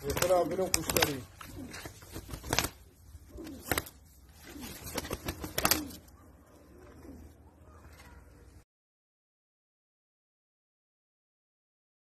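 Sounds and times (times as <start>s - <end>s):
pigeon wings flapping on ground: 0.0s - 6.2s.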